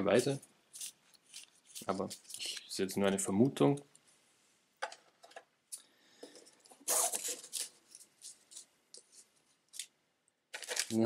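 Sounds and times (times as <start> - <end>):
board game pieces rustling: 0.7 - 2.7, 10.5 - 11.0.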